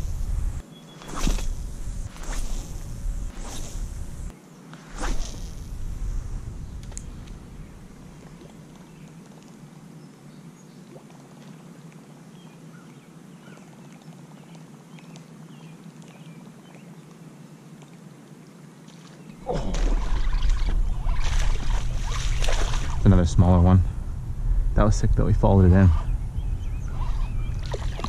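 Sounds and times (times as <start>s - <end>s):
small splashes: 18.8s - 23.1s, 27.0s - 28.0s
loud rush of splashing: 19.4s - 23.7s, 26.9s - 28.0s.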